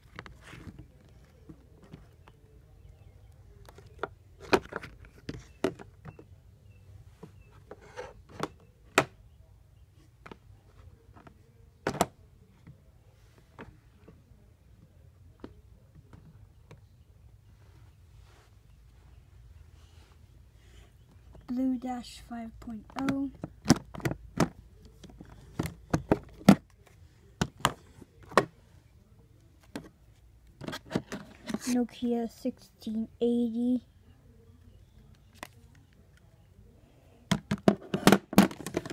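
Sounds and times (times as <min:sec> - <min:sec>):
handling clicks and knocks: 0:22.8 - 0:28.5, 0:37.3 - 0:38.9.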